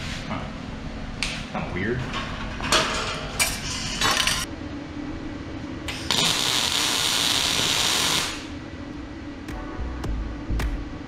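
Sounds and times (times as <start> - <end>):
welding arc hissing crackle: 5.9 - 8.5.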